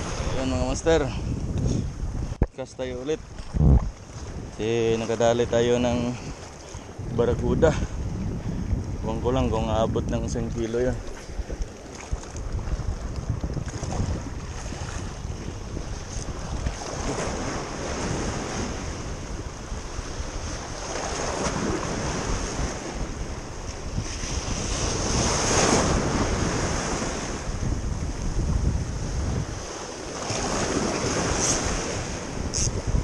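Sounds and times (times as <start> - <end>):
wind buffeting microphone: 0.0 - 33.0
sea waves washing against rocks: 10.0 - 33.0.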